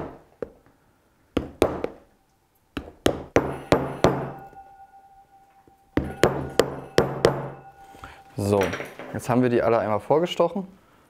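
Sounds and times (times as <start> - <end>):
hammer tapping a piercer: 2.8 - 9.1
faint ringing tone: 3.3 - 10.0.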